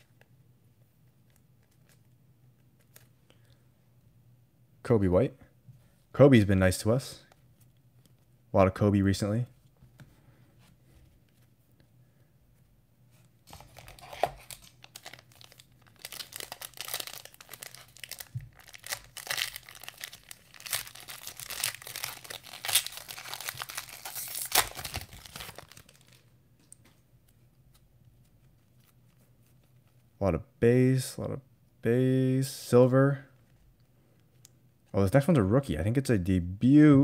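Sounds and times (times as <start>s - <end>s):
foil wrapper tearing and crinkling: 13.5s - 26.2s.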